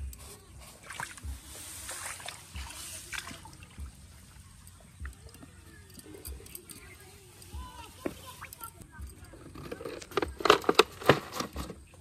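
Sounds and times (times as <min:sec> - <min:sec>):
water trickling and dripping: 0:00.8 - 0:08.9.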